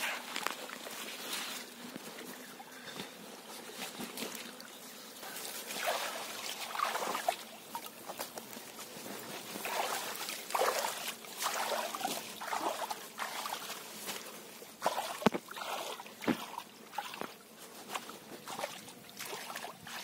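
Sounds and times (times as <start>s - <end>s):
fish splashing in water: 5.7s - 7.9s, 9.6s - 13.8s, 14.8s - 20.0s.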